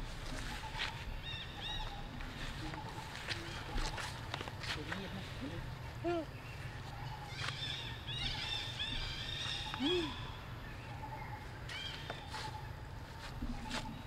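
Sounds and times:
faint steady hum: 0.0s - 14.0s
lower animal call: 7.1s - 12.7s.

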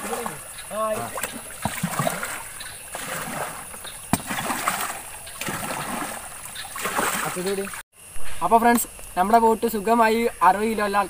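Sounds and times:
water splashing from hand paddling: 0.0s - 7.8s.

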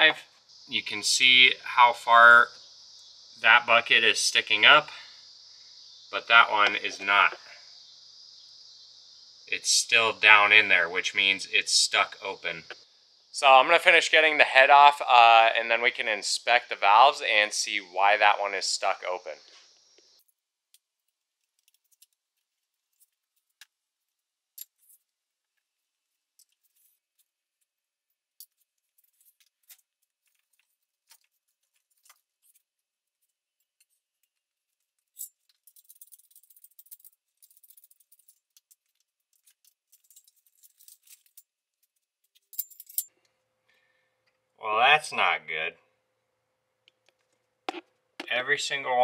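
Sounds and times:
metal tools clinking: 35.1s - 41.4s, 42.4s - 43.1s.

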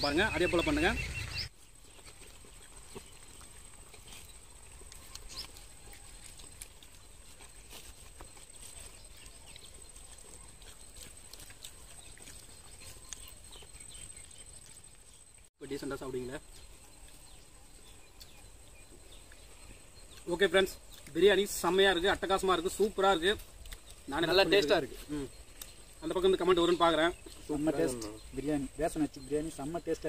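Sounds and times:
fingers rustling rice on leaves: 1.5s - 15.5s.

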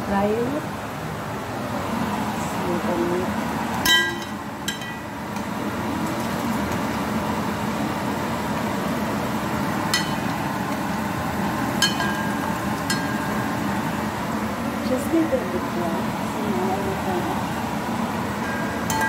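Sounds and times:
potato slices sizzling in oil: 3.4s - 19.0s
metal tongs clinking on pot: 3.8s - 5.5s, 9.9s - 10.3s, 11.8s - 13.4s, 18.4s - 19.0s.

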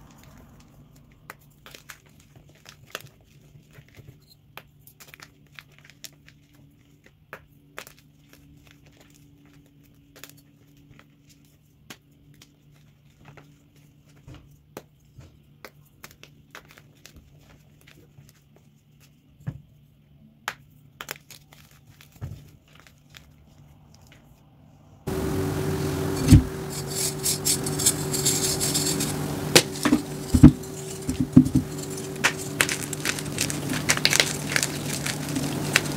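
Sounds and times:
chalk crunching and snapping: 25.1s - 35.9s.

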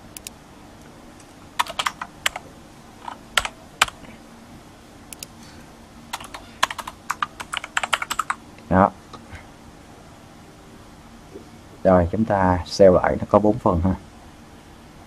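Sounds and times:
keyboard typing: 1.6s - 4.1s, 6.1s - 8.4s.

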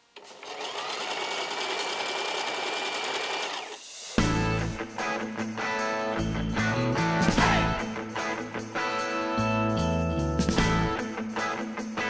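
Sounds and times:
sewing machine stitching: 0.2s - 3.8s
guitar background music: 4.2s - 12.0s.

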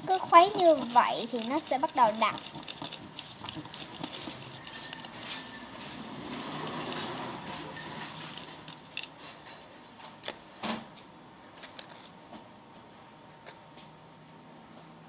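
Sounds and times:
stick scraping in plastic cup: 0.0s - 9.4s
sharp clicks and knocks: 0.0s - 12.5s.

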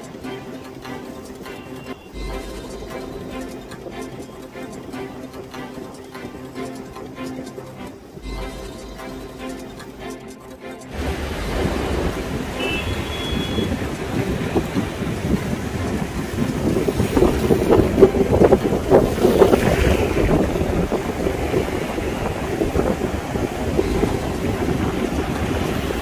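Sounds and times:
river water rushing: 0.0s - 26.0s
wind buffeting microphone: 10.9s - 26.0s.

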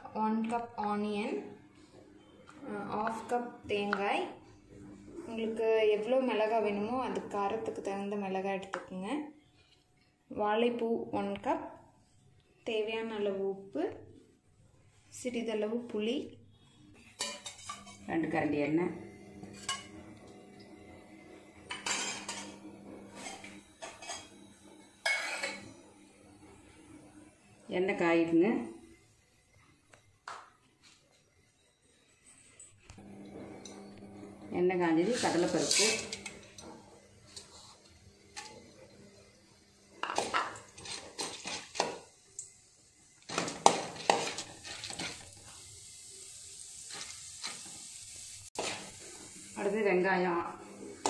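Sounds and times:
faint sizzle of frying: 0.0s - 51.0s
steel ladle scraping metal pan: 17.1s - 18.1s, 19.5s - 20.0s, 21.7s - 24.4s, 25.0s - 25.7s, 35.0s - 36.6s, 43.3s - 45.3s, 48.6s - 49.1s
ladle scraping metal container: 35.0s - 36.6s, 48.6s - 49.1s.

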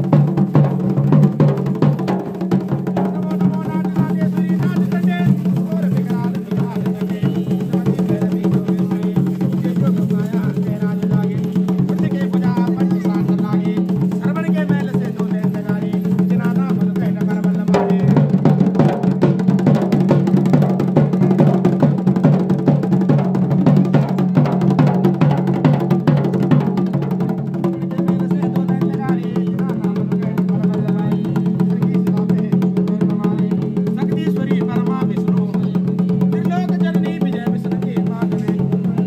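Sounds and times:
fast dense drumming: 0.0s - 39.0s
voice: 3.0s - 18.3s, 27.7s - 39.0s.

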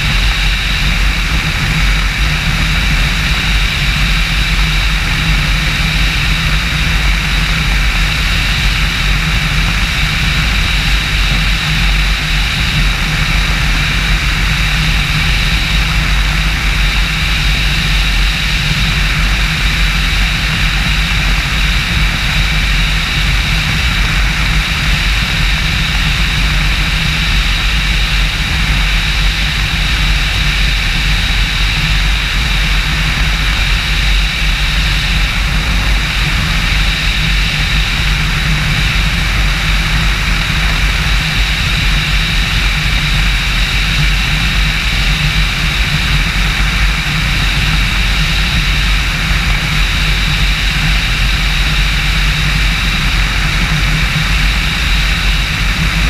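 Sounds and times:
outboard motor droning: 0.0s - 56.0s
wind rush on microphone: 0.0s - 56.0s.

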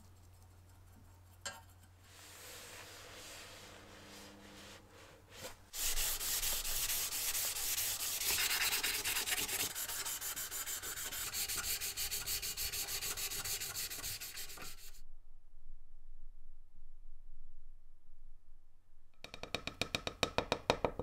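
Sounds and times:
pad scrubbing cast iron: 5.7s - 14.8s.

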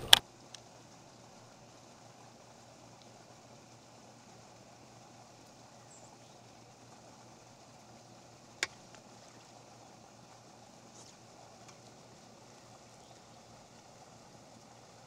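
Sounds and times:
sharp click: 0.0s - 0.2s
faint outdoor background: 0.0s - 15.0s.

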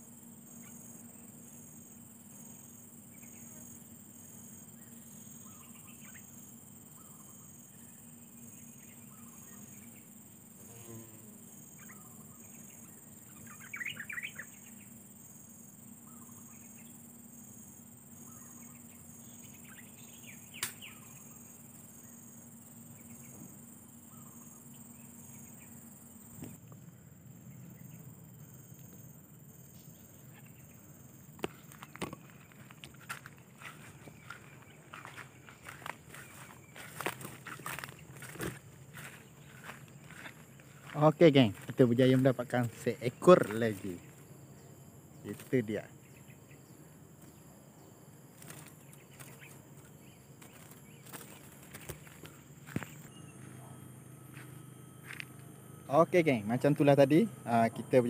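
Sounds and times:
pulsing insect drone: 0.0s - 58.0s
bird chirps: 4.6s - 10.2s, 11.7s - 15.0s, 15.9s - 17.0s, 18.1s - 26.6s
sharp click: 20.6s - 20.8s.

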